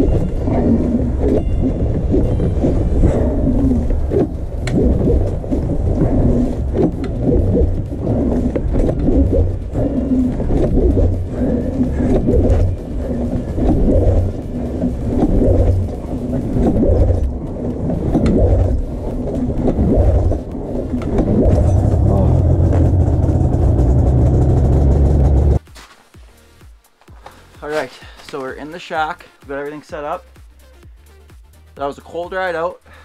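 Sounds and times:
snowmobile engine pull-starting: 0.0 - 25.6.

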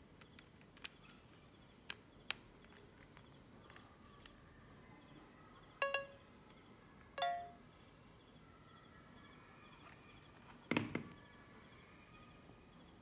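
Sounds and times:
plastic clicks: 0.2 - 4.4
electronic chime: 5.8 - 6.2, 7.2 - 7.6.

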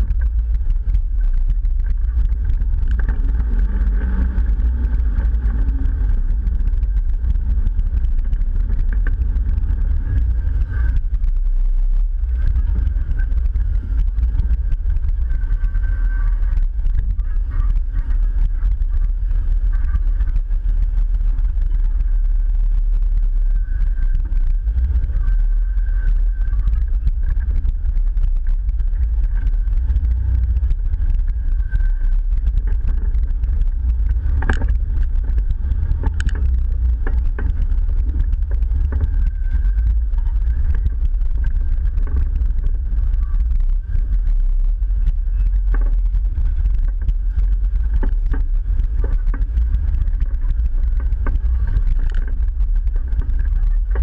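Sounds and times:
off-road vehicle engine rumbling: 0.0 - 54.0
vehicle clicking over rocks: 0.0 - 54.0.

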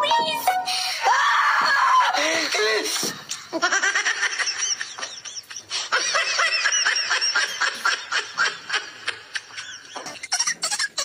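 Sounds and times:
man laughing uncontrollably: 3.4 - 11.0.

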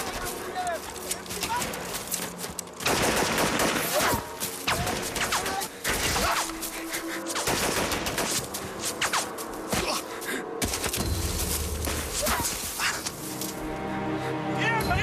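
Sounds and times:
rapid gunfire: 2.8 - 6.6, 7.4 - 9.3.

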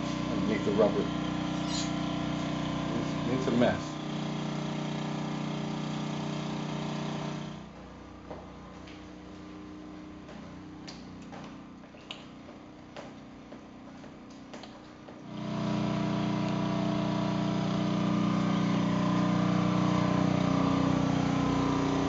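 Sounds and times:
loud engine drone: 0.0 - 7.7, 15.3 - 22.0.

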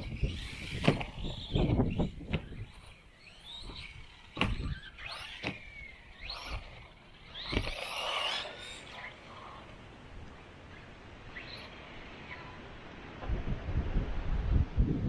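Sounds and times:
toy car thudding on track: 0.0 - 9.7
electric motor whining: 0.0 - 12.8.

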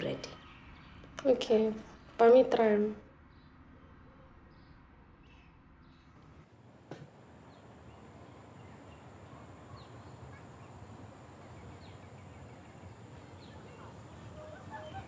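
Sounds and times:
faint steady hiss: 6.4 - 15.0
bird chirps: 7.4 - 15.0.

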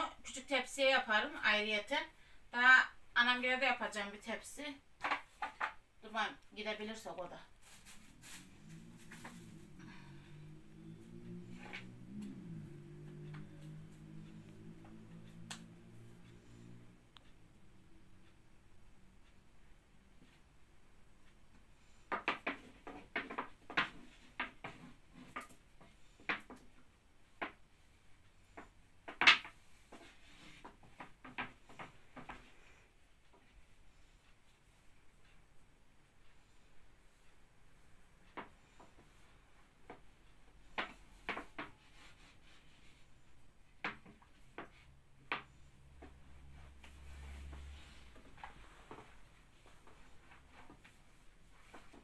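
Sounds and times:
low hum: 8.0 - 19.1
rolling pin clicking on dough: 21.9 - 27.7.

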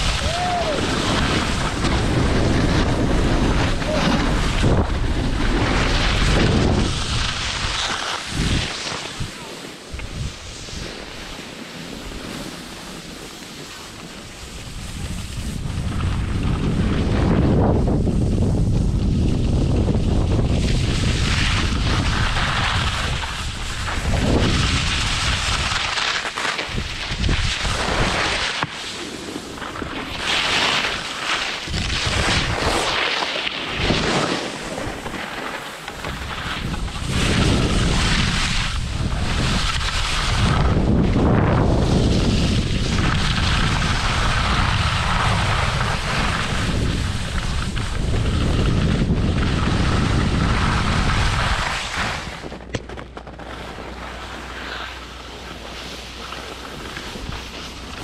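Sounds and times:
wind buffeting microphone: 0.0 - 11.3, 14.2 - 25.8, 26.7 - 28.4, 31.6 - 33.0, 36.0 - 54.0
skis hissing on snow: 0.0 - 52.6, 53.4 - 58.0.

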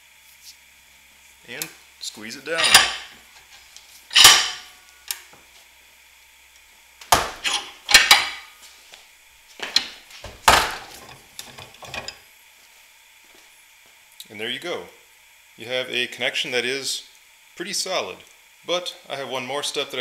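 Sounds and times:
vise metallic clanks and scrapes: 2.5 - 3.2, 4.1 - 4.8, 7.2 - 8.5, 10.6 - 12.2.

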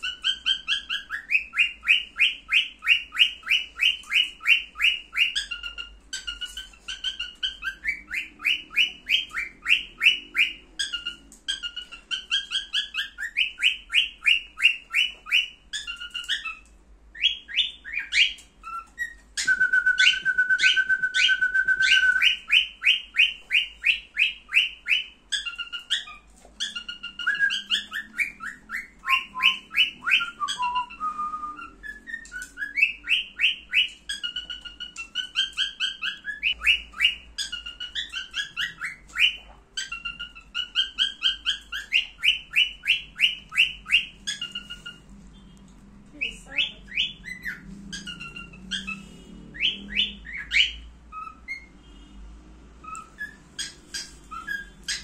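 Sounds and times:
cockatiel whistle: 0.0 - 45.5, 46.9 - 52.1, 52.8 - 55.0
cockatiel chirping: 0.0 - 52.1, 52.8 - 55.0.

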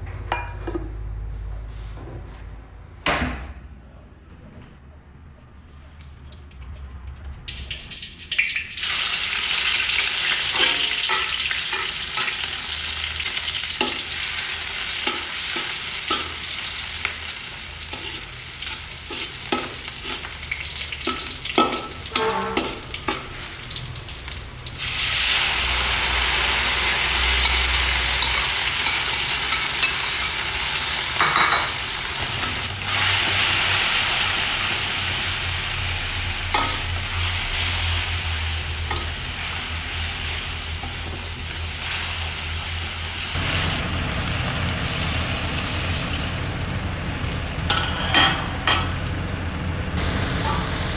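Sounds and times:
food sizzling in hot oil: 7.5 - 50.9
metal spatula scraping a wok: 21.8 - 23.4.

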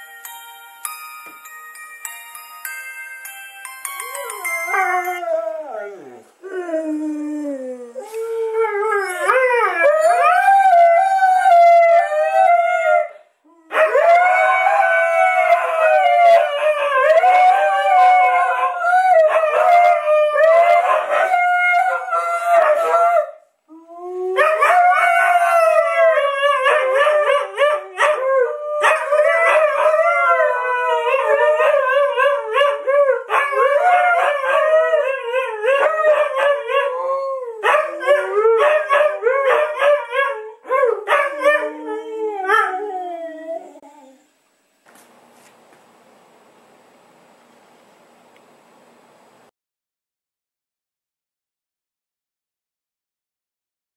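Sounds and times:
phone ringtone: 0.0 - 5.2
dogs howling: 4.1 - 44.2.

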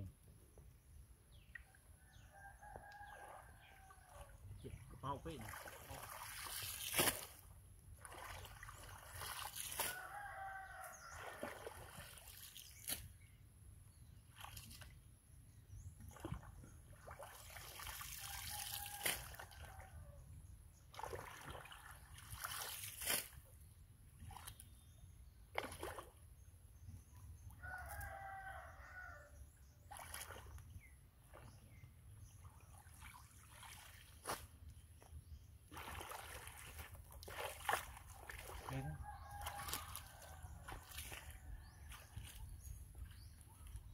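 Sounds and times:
water splashing and sloshing: 1.3 - 43.9
rooster crowing: 9.9 - 11.2, 27.6 - 29.4, 38.8 - 40.6.

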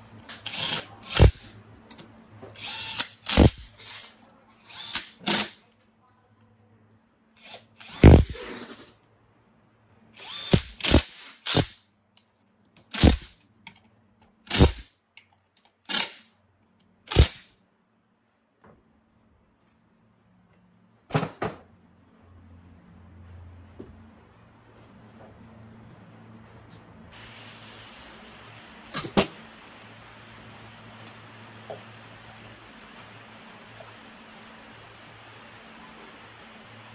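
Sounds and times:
handheld power tool bursts: 0.3 - 1.5, 2.6 - 4.1, 4.8 - 5.6, 7.5 - 8.6, 10.2 - 11.8, 12.9 - 13.4, 14.5 - 14.9, 15.9 - 16.3, 17.1 - 17.5.

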